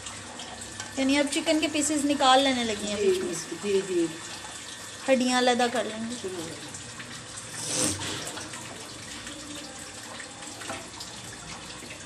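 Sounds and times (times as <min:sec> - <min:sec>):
cooking hiss on gas stove: 0:07.4 - 0:08.4.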